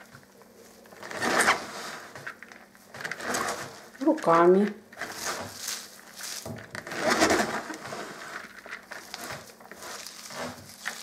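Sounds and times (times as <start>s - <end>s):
shredded vegetables rustling and crunching: 0.0s - 11.0s.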